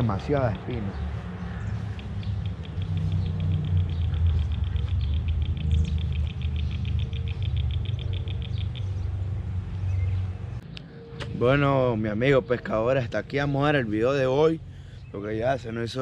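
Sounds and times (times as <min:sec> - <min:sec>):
steady low rumble: 0:00.0 - 0:14.0
small animal chirping rapidly: 0:01.8 - 0:09.2.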